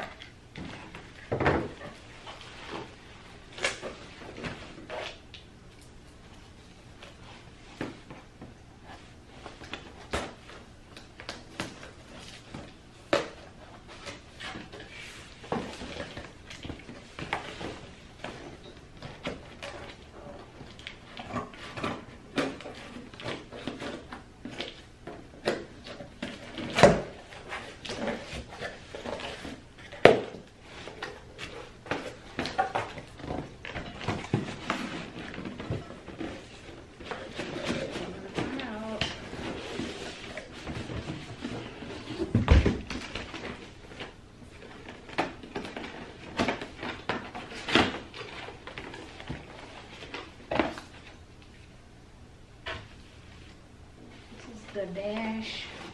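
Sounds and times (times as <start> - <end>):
plastic packing rustling: 8.9 - 51.7.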